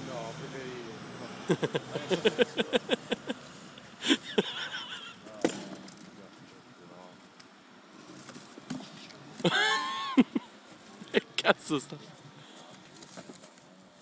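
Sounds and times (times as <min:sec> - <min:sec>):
people laughing: 0:01.3 - 0:05.4, 0:09.4 - 0:11.8.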